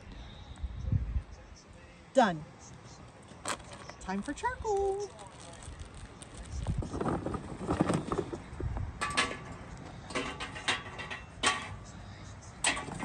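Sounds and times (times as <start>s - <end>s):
charcoal rustling: 3.3s - 11.8s.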